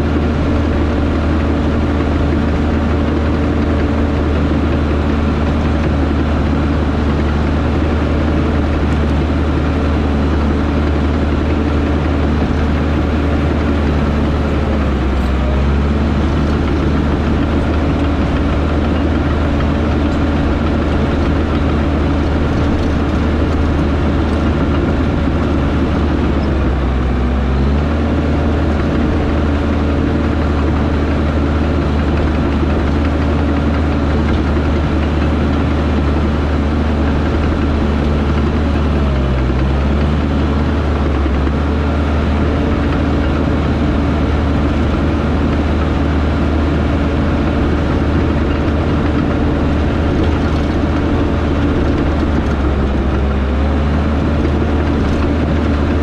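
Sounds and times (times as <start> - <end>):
heavy machinery diesel engine: 0.0 - 56.0.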